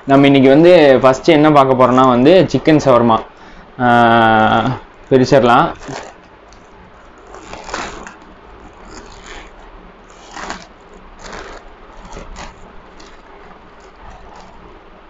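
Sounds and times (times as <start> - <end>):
food wrapping crinkling: 4.1 - 15.0.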